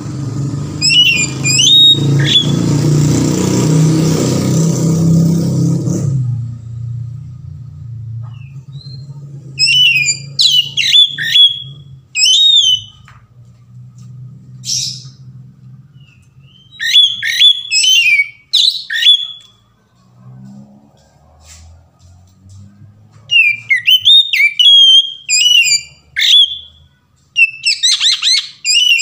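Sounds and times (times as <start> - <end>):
bird singing whistled phrases: 0.8 - 2.6, 8.4 - 13.0, 16.0 - 19.6, 23.3 - 29.0
low steady rumble: 5.8 - 12.2.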